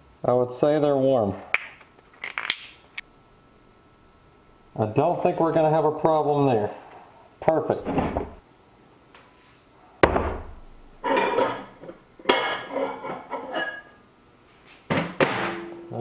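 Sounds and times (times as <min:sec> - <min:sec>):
tools rattling and clinking: 0:01.6 - 0:03.0.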